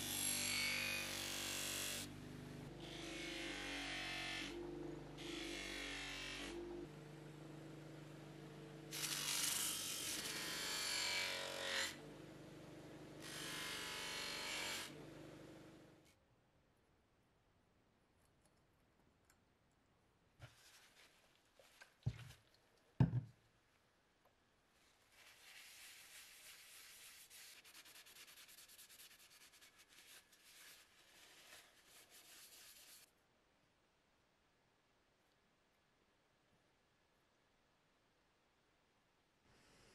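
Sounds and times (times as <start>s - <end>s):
paper towel scrubbing metal bottle: 25.0s - 33.1s.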